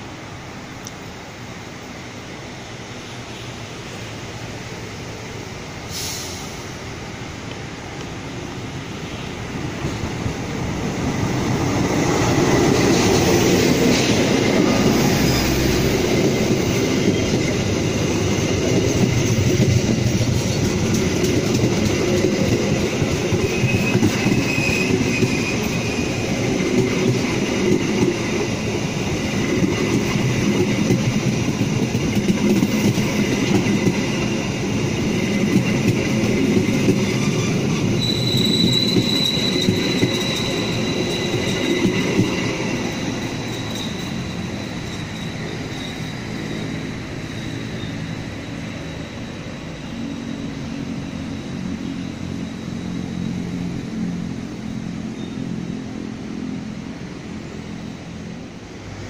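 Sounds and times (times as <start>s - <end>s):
diesel locomotive passing: 0.0s - 59.0s
train wheels rumbling and clattering: 4.7s - 59.0s
train wheel squeal: 11.0s - 55.8s.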